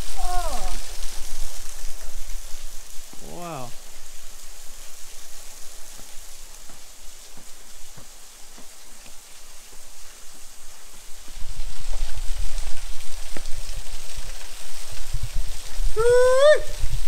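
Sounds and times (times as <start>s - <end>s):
soft footsteps on path: 0.0s - 15.9s
rushing water: 0.0s - 17.0s
person humming: 0.2s - 0.8s.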